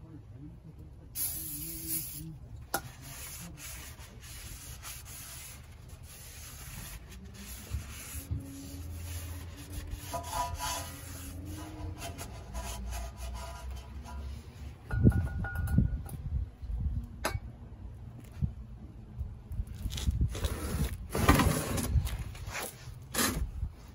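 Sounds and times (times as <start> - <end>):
aerosol spray hiss: 1.2 - 2.2
cloth rubbing on metal: 1.6 - 14.8.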